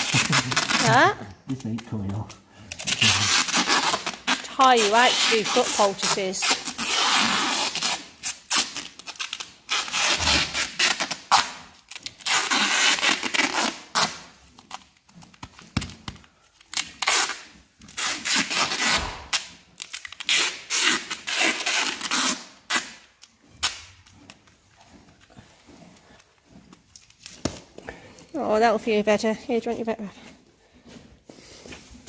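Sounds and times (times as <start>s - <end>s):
duct tape pulled off roll: 0.0s - 24.4s.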